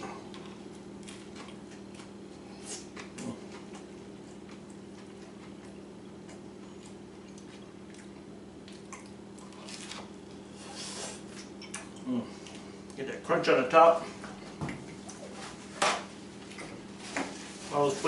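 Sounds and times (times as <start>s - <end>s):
person chewing a sandwich: 0.0s - 13.0s
steady low hum: 0.0s - 18.0s
crunching crisp crust: 0.4s - 11.4s.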